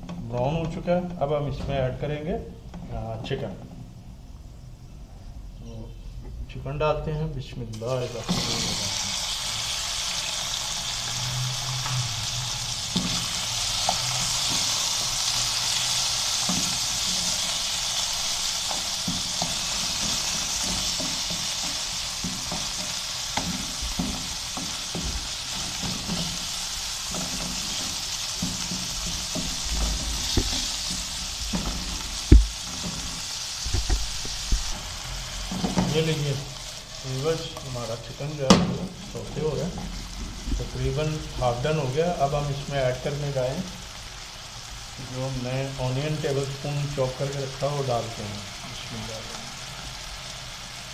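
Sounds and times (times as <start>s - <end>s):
chicken sizzling in hot oil: 7.8s - 50.9s
wooden spatula scraping pan: 11.1s - 34.8s.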